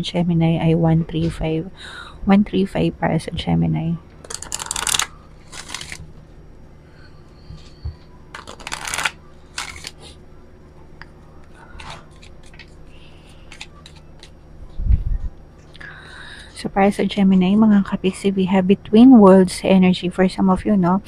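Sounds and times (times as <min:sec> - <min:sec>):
cards riffling: 0:04.2 - 0:06.1, 0:08.3 - 0:10.2, 0:11.8 - 0:14.4
card clicks: 0:04.3 - 0:06.0, 0:08.4 - 0:10.0, 0:13.4 - 0:14.4.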